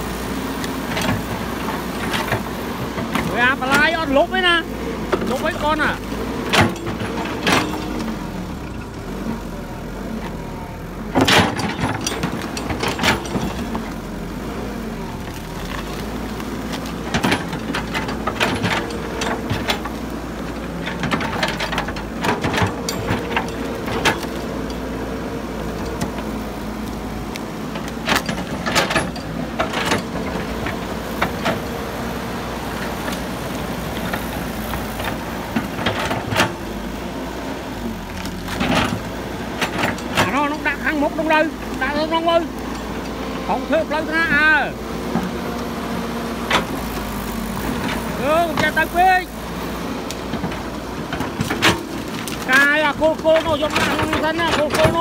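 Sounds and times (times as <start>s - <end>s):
excavator diesel engine running: 0.0s - 55.0s
metallic clanks and knocks: 6.4s - 8.1s, 11.1s - 13.8s, 27.8s - 31.6s.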